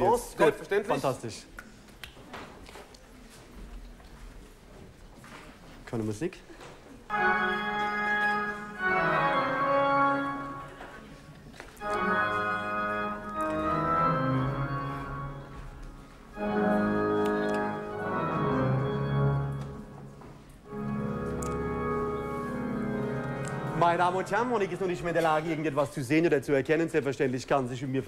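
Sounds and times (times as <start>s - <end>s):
organ chords: 7.1s - 10.8s, 11.8s - 25.1s.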